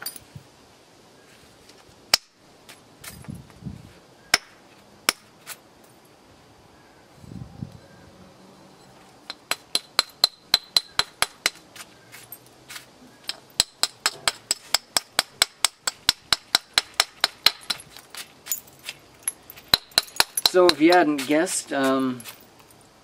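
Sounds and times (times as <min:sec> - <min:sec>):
stone tapping on stone: 0:19.6 - 0:21.4.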